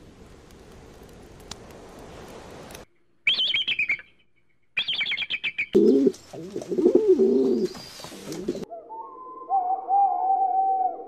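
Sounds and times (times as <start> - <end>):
bird low wavering calls: 4.8 - 11.0.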